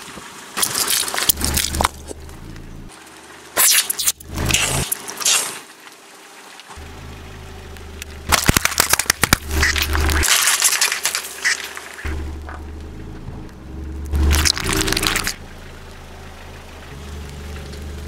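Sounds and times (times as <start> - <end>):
sharp crackles: 0.0 - 6.8, 7.6 - 16.0
car engine idling: 1.3 - 3.5, 6.2 - 10.2, 11.7 - 18.0.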